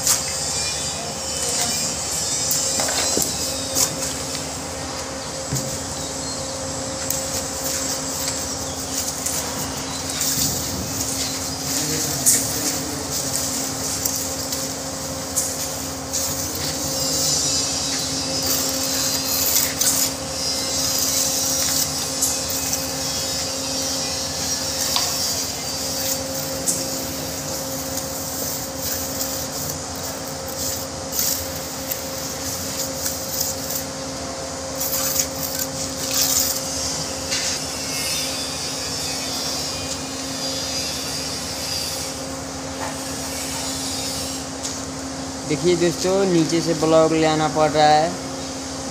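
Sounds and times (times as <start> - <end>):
steady machine hum: 0.0 - 48.9
trowel scraping mortar: 7.1 - 34.0, 34.7 - 38.2.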